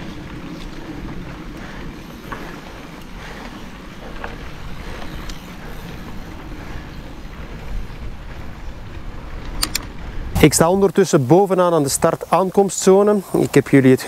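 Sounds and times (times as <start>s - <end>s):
wind on microphone: 0.0s - 11.0s
bike tyres rolling over trail: 0.0s - 14.0s
faint clicks: 0.2s - 10.1s.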